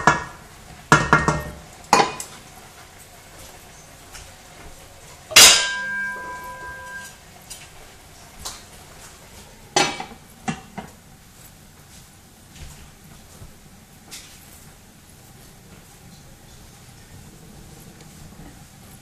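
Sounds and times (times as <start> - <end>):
metal cookware clanging: 0.0 - 2.4, 5.3 - 7.6, 9.7 - 10.9
metal lid clanking onto pot: 5.3 - 7.1.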